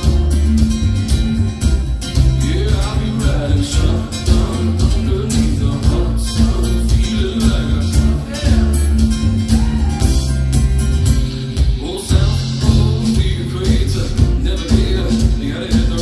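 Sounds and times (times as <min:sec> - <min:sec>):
live band playing: 0:00.0 - 0:16.0
man singing: 0:02.1 - 0:10.1, 0:11.6 - 0:16.0.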